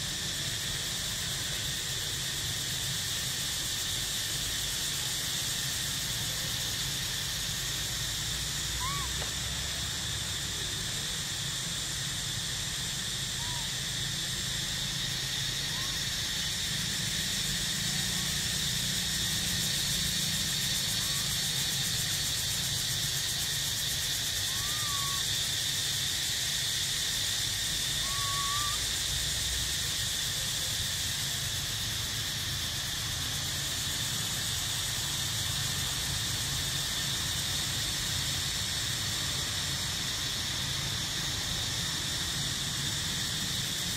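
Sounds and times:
insect chorus drone: 0.0 - 43.9
faint chirping calls: 6.7 - 11.8, 12.4 - 29.5.

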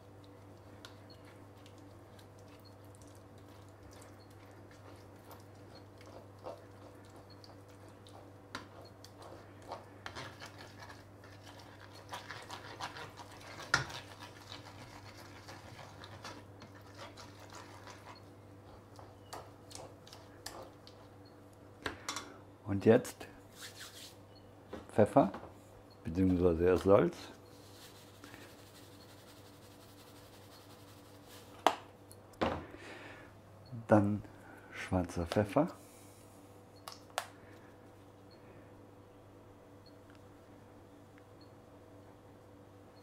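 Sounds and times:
steady low hum: 0.0 - 43.0
spoon scraping a pan: 4.2 - 20.8.

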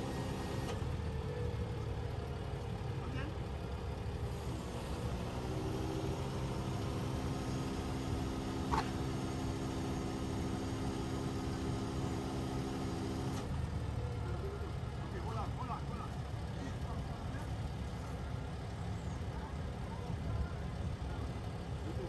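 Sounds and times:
hydraulic low whine: 0.0 - 1.1, 4.3 - 13.6
diesel engine running: 0.0 - 22.0.

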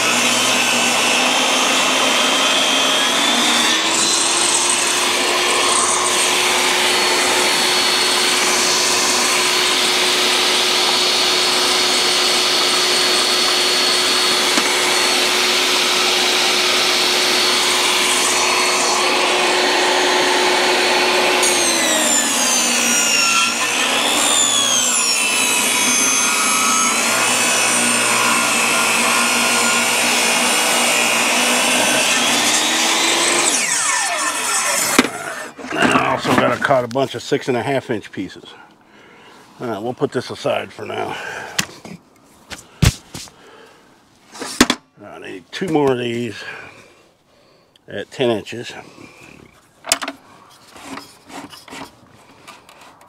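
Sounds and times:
table saw running: 0.0 - 36.7
saw blade cutting board: 0.0 - 36.8, 42.5 - 43.4, 50.5 - 52.6.

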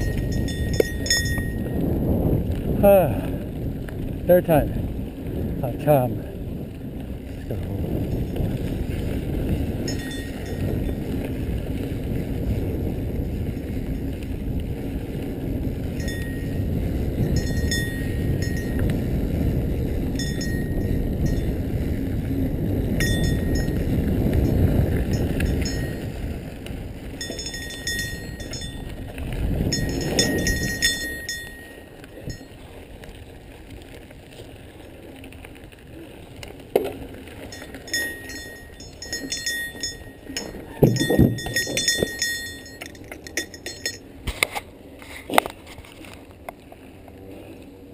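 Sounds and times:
metallic chiming and jingling: 0.0 - 1.6, 9.9 - 10.7, 17.4 - 18.8, 20.2 - 21.5, 23.0 - 23.8, 25.1 - 26.1, 27.2 - 28.9, 29.7 - 32.5, 37.5 - 44.0
wind rushing over microphone: 0.0 - 46.2
bike rattling: 0.0 - 47.9
tyres rolling over dirt: 0.0 - 47.9.

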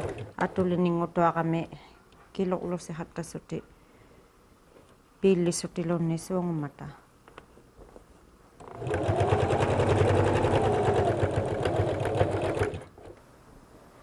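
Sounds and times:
sewing machine stitching: 0.0 - 0.4, 8.6 - 13.2.

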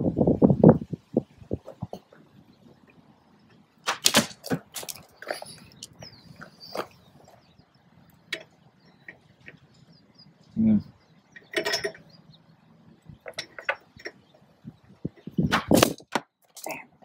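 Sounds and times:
metal hardware clicking and clinking: 11.3 - 12.2, 13.2 - 14.2.

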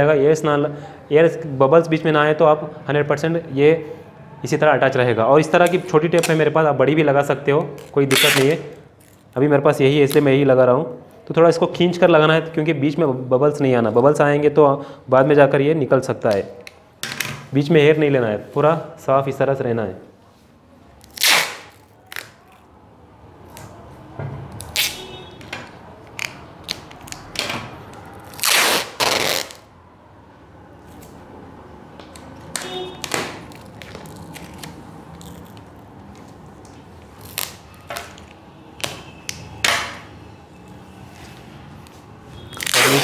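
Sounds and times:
adhesive tape ripping off roll: 5.6 - 6.5, 7.7 - 9.4, 21.0 - 22.7, 24.6 - 25.0, 26.1 - 29.7, 32.2 - 35.8, 37.0 - 39.1, 42.5 - 43.0.

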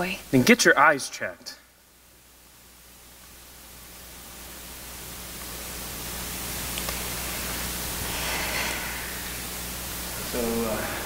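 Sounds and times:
steady hiss: 0.0 - 11.0
low hum: 1.9 - 11.0.

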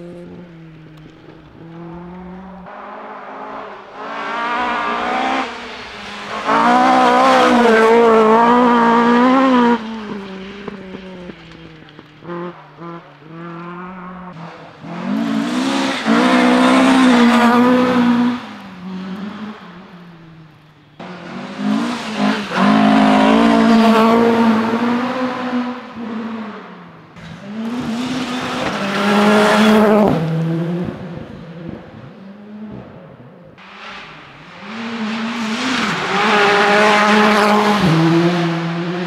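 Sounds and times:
rally cars passing at speed: 0.0 - 39.0.

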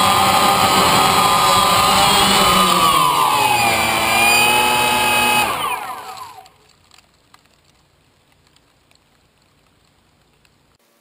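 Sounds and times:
drone motors whirring: 0.0 - 6.5.

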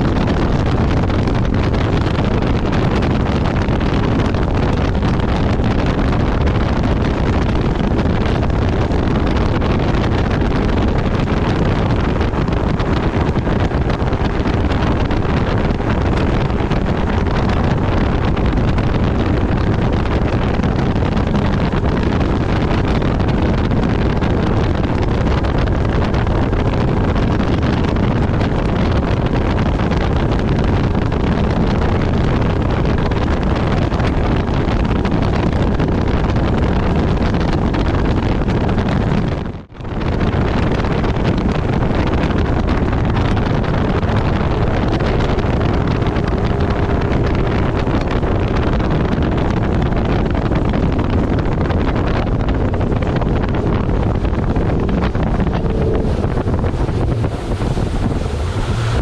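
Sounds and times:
boat hull on water: 0.0 - 59.0
wind on microphone: 0.0 - 59.0
outboard motor running: 42.9 - 59.0.

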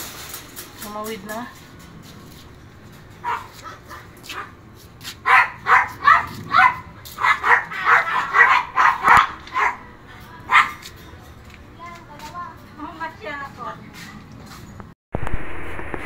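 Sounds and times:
dog barking: 3.2 - 4.6, 5.2 - 9.9, 10.5 - 10.8.

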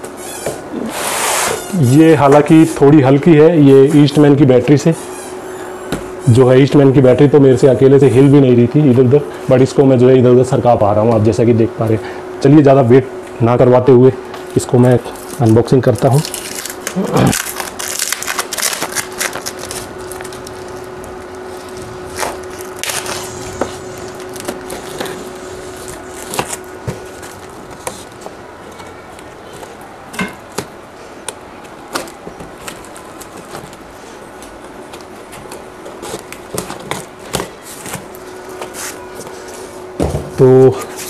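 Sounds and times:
faint steady hum: 0.0 - 41.0
cardboard crackling and rustling: 15.2 - 29.8, 31.6 - 39.8.

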